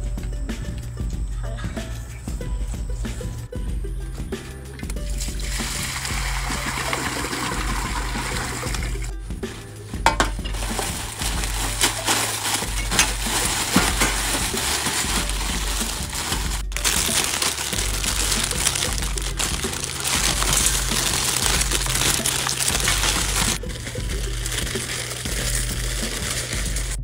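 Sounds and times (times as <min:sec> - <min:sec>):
dry noodles crackling: 0:05.3 - 0:27.0
plastic packets tearing and crinkling: 0:10.2 - 0:27.0.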